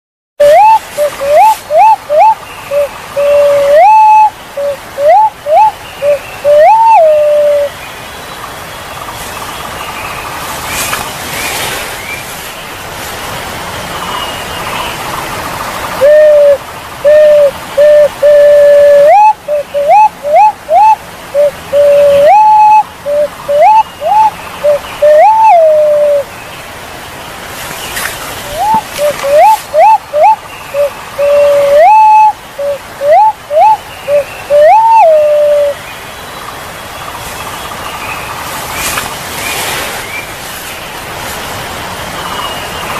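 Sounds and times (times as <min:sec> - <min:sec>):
pigeon whistled calls: 0:00.4 - 0:07.7, 0:16.0 - 0:26.2, 0:28.5 - 0:35.8
steady hiss: 0:07.1 - 0:22.2, 0:25.8 - 0:34.6, 0:35.2 - 0:42.9.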